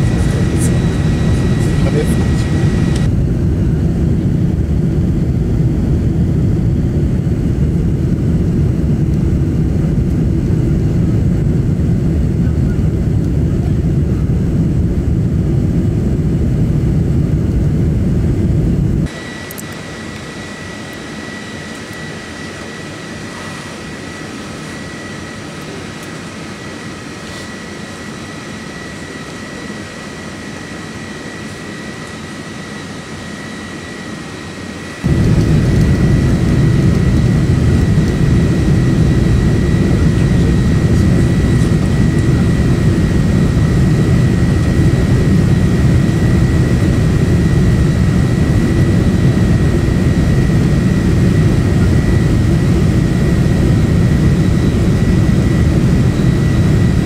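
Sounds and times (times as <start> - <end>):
aircraft cabin rumble: 0.0 - 20.6, 34.9 - 57.0
thin steady engine whine: 0.0 - 57.0.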